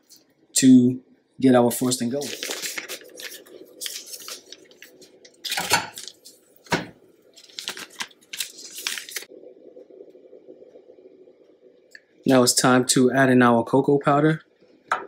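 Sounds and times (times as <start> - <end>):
paper wrapper crinkling and tearing: 1.9 - 9.3.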